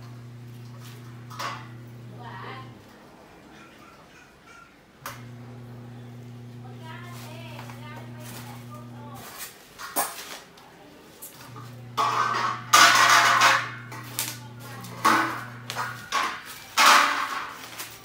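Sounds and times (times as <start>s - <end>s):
steady low hum: 0.0s - 2.8s, 11.5s - 16.2s.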